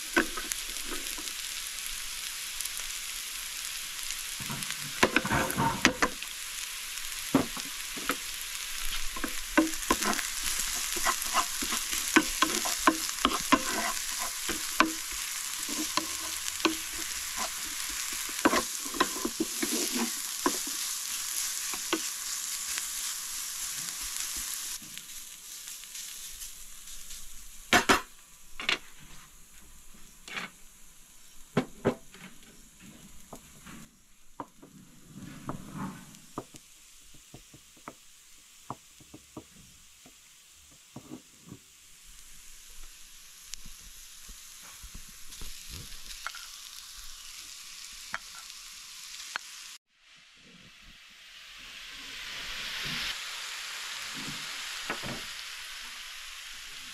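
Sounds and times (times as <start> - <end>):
vegetables sizzling in oil: 0.0 - 56.9
wooden spatula stirring: 7.4 - 24.7.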